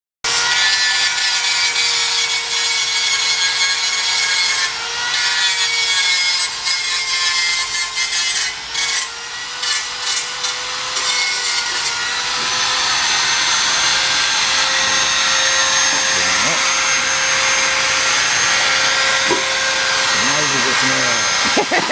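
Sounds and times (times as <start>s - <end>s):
angle grinder grinding metal: 0.3s - 21.9s
grinder motor whine: 8.5s - 21.9s.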